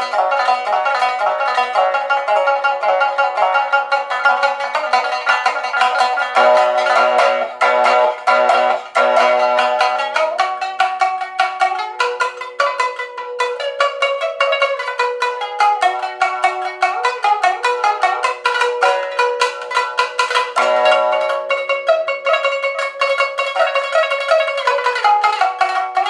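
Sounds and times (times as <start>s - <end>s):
shamisen played solo: 0.0s - 26.0s.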